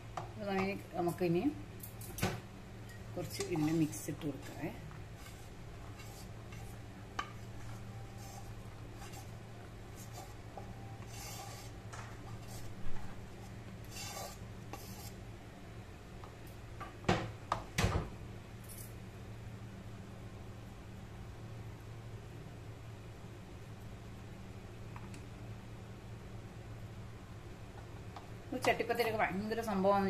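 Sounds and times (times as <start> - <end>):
steady low hum: 0.0 - 30.0
spatula scraping a pan: 3.2 - 15.2.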